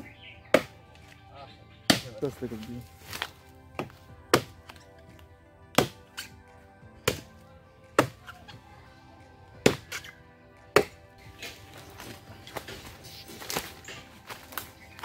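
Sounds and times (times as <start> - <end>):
background music: 0.0 - 15.0
machete chopping bamboo: 0.5 - 0.8, 1.8 - 2.2, 3.1 - 4.8, 5.7 - 6.3, 7.0 - 8.4, 9.6 - 15.0.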